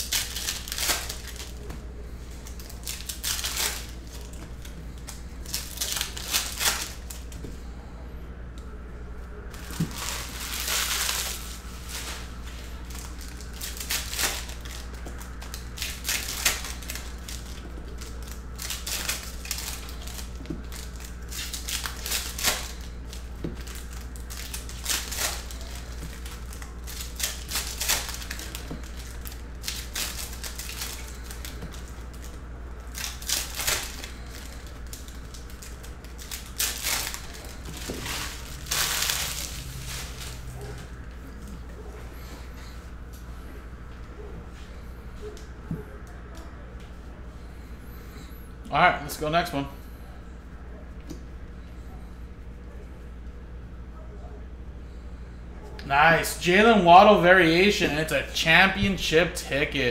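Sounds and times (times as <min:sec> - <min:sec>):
foil packs crinkling: 0:00.0 - 0:07.5, 0:09.5 - 0:40.9.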